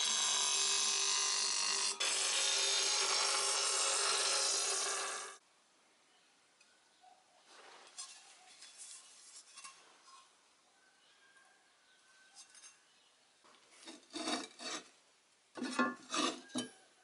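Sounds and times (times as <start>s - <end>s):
sheet-steel blade rasping strokes: 0.0s - 5.4s.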